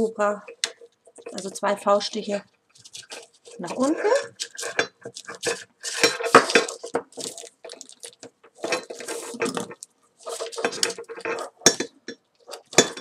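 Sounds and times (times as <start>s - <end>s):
cord rustling and scraping: 0.0s - 13.0s.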